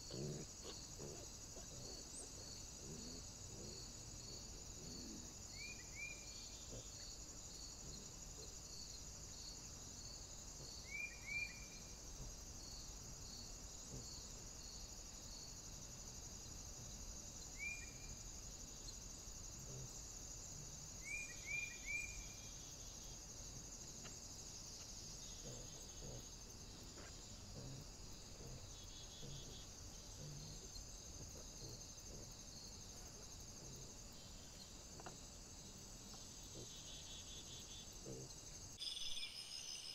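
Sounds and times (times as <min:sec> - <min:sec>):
crickets chirring: 0:00.0 - 0:39.9
soft pulses: 0:25.4 - 0:32.3.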